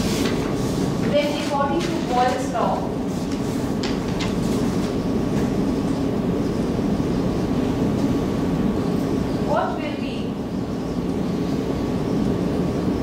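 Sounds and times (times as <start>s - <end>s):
low room rumble: 0.0s - 13.0s.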